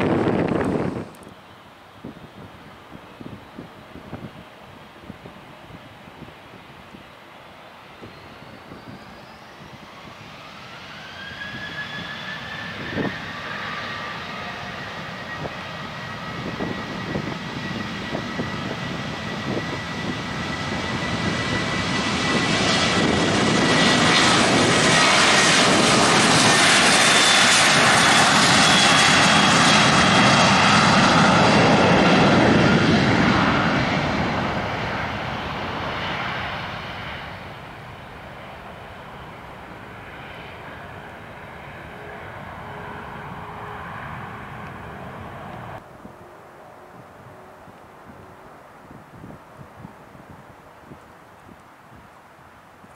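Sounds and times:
jet passing on takeoff roll: 0:00.0 - 0:01.3, 0:05.3 - 0:51.0
jet engines spooling up: 0:07.4 - 0:48.6.

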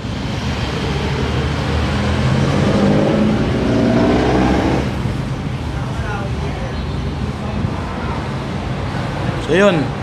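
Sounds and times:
vehicle engine passing by: 0:00.0 - 0:05.5.

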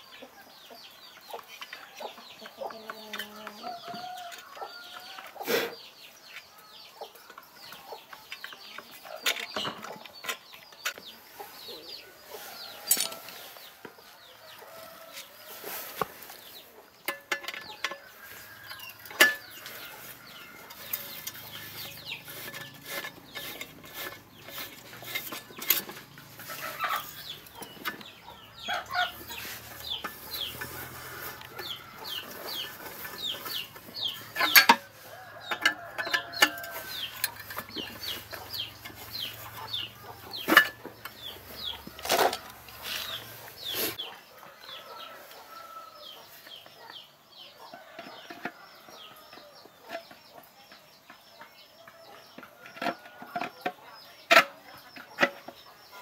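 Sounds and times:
chickens clucking and peeping: 0:00.0 - 0:56.0
socket wrench clinking: 0:12.9 - 0:13.2.

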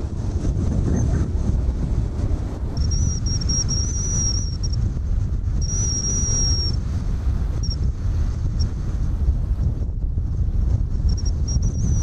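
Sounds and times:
distant jets rumbling: 0:00.0 - 0:10.2
wind buffeting microphone: 0:00.0 - 0:12.0
thin high whistle: 0:02.8 - 0:04.8, 0:05.6 - 0:06.8, 0:11.1 - 0:12.0.

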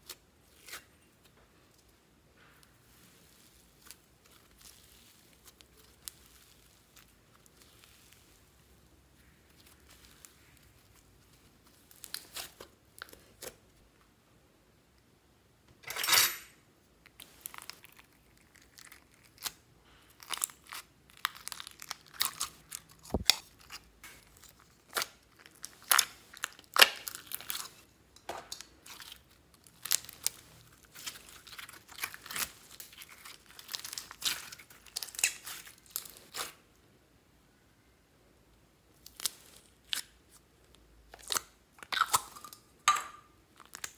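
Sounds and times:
slime crackling and popping: 0:02.9 - 0:08.5, 0:17.1 - 0:27.8, 0:28.6 - 0:36.6, 0:43.5 - 0:43.9.

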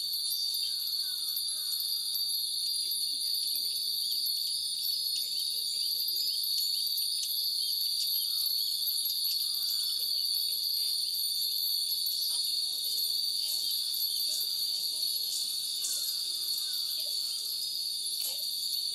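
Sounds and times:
insects droning: 0:00.0 - 0:18.9
wind bells tinkling: 0:00.0 - 0:18.9.

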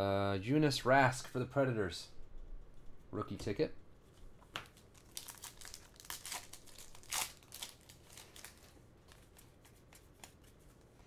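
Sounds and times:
cards rustling: 0:04.1 - 0:11.0
foil wrappers crinkling: 0:04.6 - 0:10.6.

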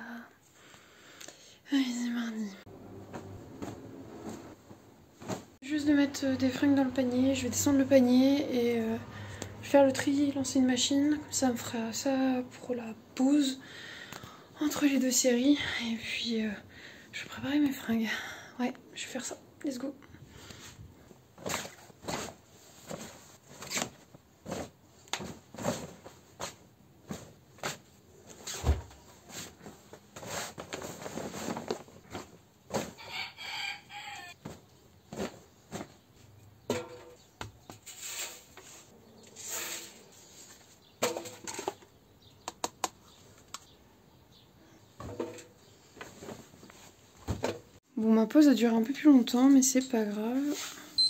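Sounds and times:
clothes rustling: 0:03.0 - 0:05.9, 0:20.4 - 0:33.0, 0:34.3 - 0:36.4, 0:45.6 - 0:47.8.

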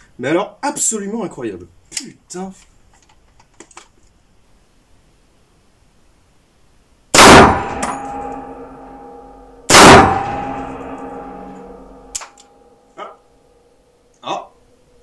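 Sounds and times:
rifle shots ringing indoors: 0:07.1 - 0:12.8.

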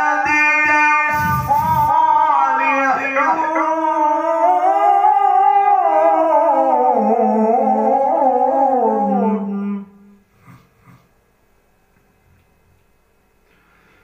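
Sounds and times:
man reciting melodically: 0:00.0 - 0:10.0
faint breath: 0:13.4 - 0:14.0.

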